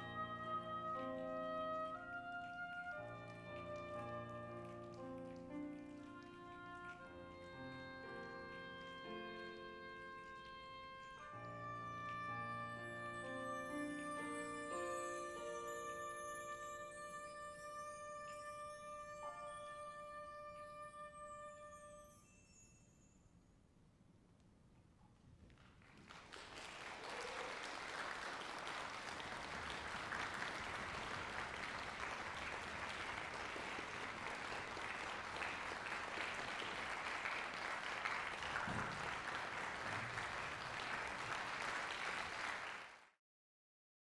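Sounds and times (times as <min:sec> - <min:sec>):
audience applauding: 0:02.0 - 0:12.2, 0:25.4 - 0:43.2.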